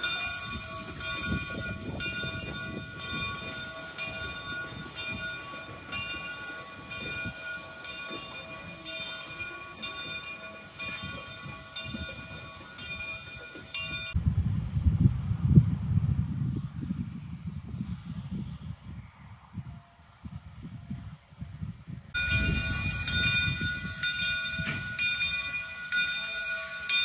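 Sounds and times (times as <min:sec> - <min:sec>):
steam locomotive bell ringing: 0:00.0 - 0:14.2, 0:22.2 - 0:27.0
low rumble of moving train: 0:00.0 - 0:27.0.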